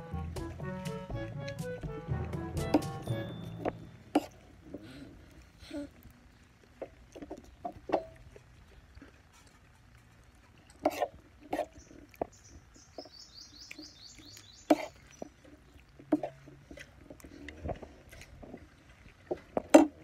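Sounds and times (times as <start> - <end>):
bird chirping: 11.8 - 15.4.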